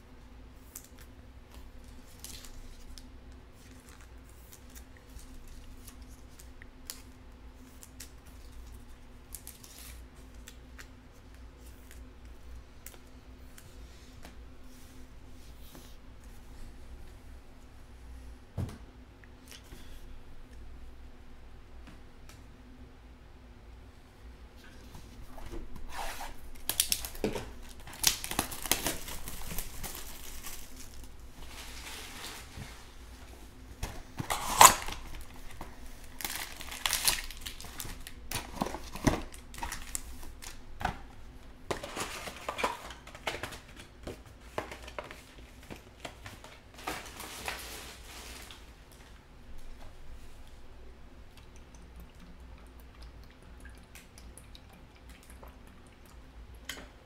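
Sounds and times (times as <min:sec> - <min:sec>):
plastic wrapping crinkling and tearing: 0:01.8 - 0:10.9, 0:25.8 - 0:33.0, 0:33.8 - 0:40.6, 0:41.7 - 0:43.9, 0:44.5 - 0:48.7
foil card packs rustling: 0:25.8 - 0:33.1, 0:33.8 - 0:40.9, 0:41.7 - 0:48.7.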